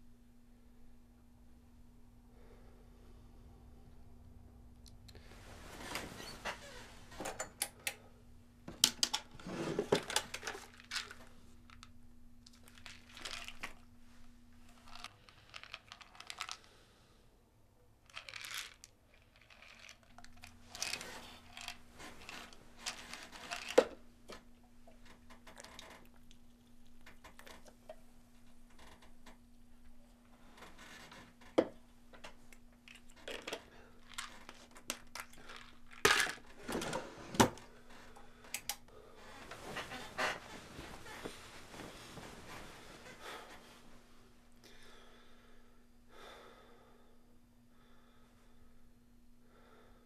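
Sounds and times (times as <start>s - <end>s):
faint steady hum: 0.0s - 50.0s
bedsheets rustling: 5.3s - 7.2s, 39.1s - 44.4s
pills rattling: 10.0s - 13.9s, 14.6s - 16.7s, 18.1s - 24.0s, 32.9s - 36.6s
pill bottle opening: 12.5s - 13.8s, 18.1s - 24.0s.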